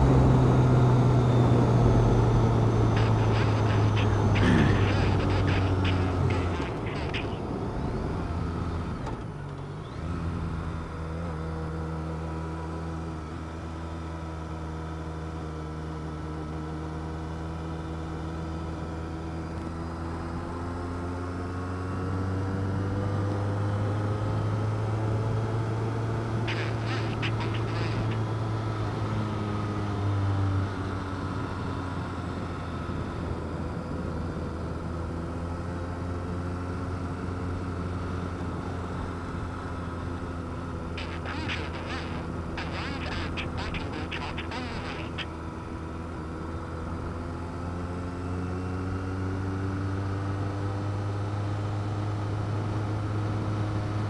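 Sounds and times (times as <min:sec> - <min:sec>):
motorcycle engine running: 0:01.8 - 0:08.7, 0:31.0 - 0:54.0.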